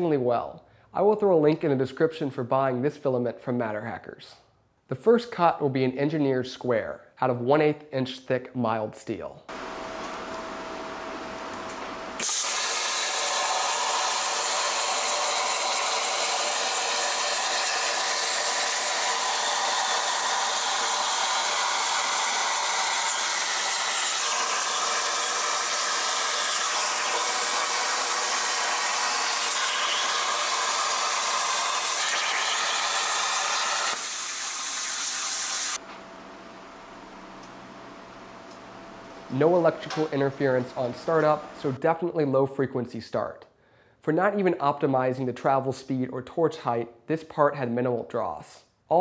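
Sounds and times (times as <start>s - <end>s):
arc blowback start: 9.5s - 14.2s
plasma cutter arc hissing: 11.1s - 35.8s.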